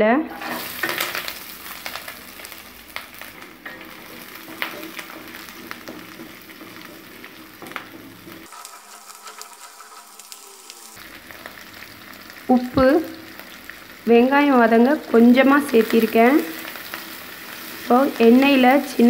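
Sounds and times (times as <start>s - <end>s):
aromatics sizzling in hot oil: 0.2s - 19.0s
wooden spatula scraping pan: 0.3s - 11.0s.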